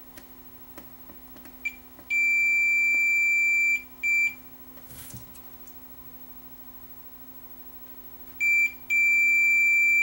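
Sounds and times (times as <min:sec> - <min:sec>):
multimeter continuity beeps: 0:01.6 - 0:04.4, 0:08.4 - 0:10.0.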